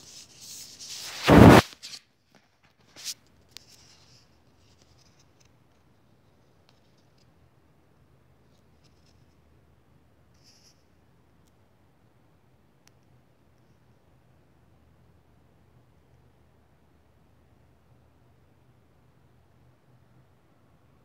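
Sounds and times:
phone rubbing against microphone: 0.0s - 1.8s
short scrapes: 0.0s - 2.0s.

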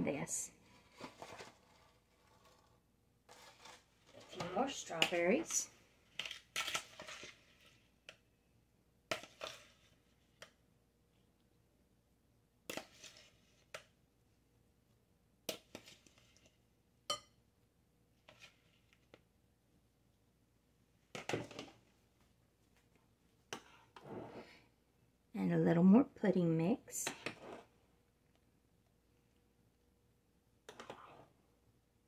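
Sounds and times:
spoon scraping bowl: 0.7s - 7.9s, 9.1s - 10.2s, 12.7s - 13.8s, 18.2s - 19.1s, 23.5s - 24.6s, 27.0s - 27.7s, 30.7s - 31.3s.

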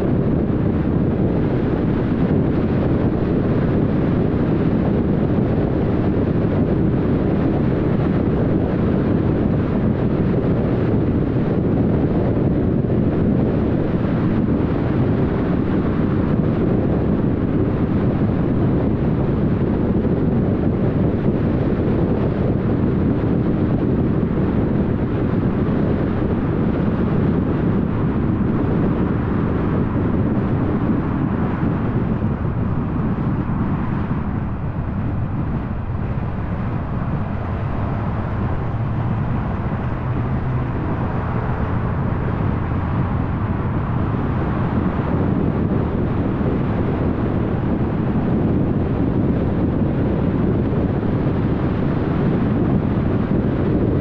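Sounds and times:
tyre and road noise: 0.0s - 54.0s
wind: 0.0s - 54.0s.

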